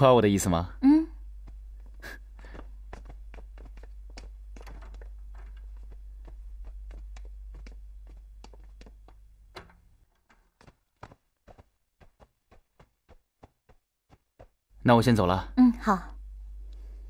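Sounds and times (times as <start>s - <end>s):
low steady hum: 0.0s - 10.6s, 14.7s - 17.0s
footsteps on hard floor: 1.4s - 14.6s.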